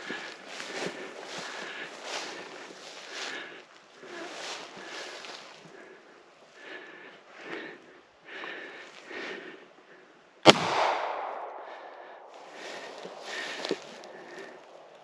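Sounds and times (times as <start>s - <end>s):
footsteps rustling through brush: 0.0s - 7.6s, 11.6s - 15.0s
loud sharp crack: 10.4s - 12.0s.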